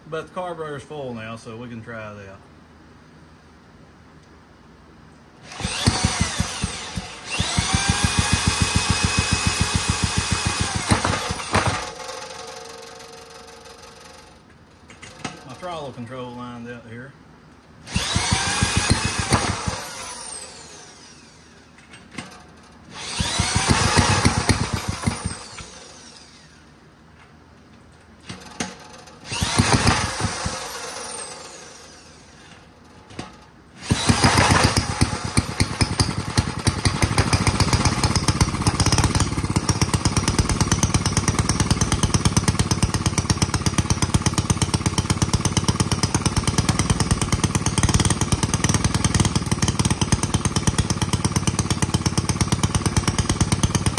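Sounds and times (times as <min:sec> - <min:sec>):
electric drill whirring: 0:05.4 - 0:14.2, 0:17.8 - 0:21.8, 0:22.9 - 0:26.7, 0:28.3 - 0:32.5, 0:33.8 - 0:53.9
small engine running: 0:05.4 - 0:14.4, 0:17.8 - 0:26.7, 0:28.2 - 0:32.6, 0:33.8 - 0:53.9.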